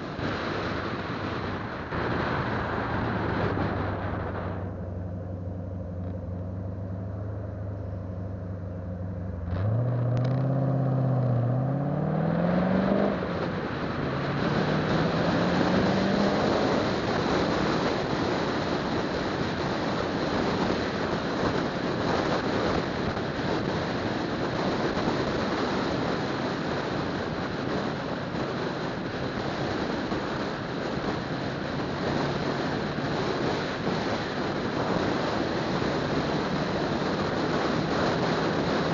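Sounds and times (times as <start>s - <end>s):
road and wind noise: 0.0s - 38.9s
car engine revving and shifting: 9.3s - 18.8s.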